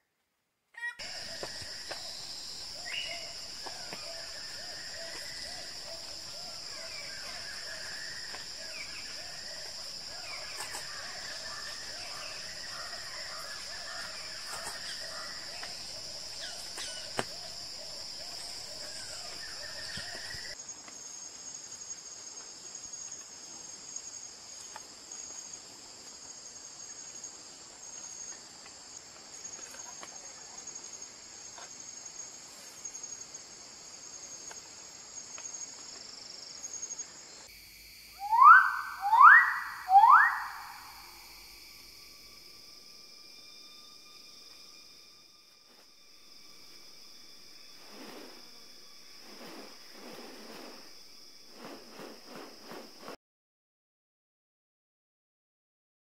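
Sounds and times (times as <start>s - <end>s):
high-pitched insect chorus: 1.0s - 53.2s
repeated animal calls: 38.2s - 41.2s.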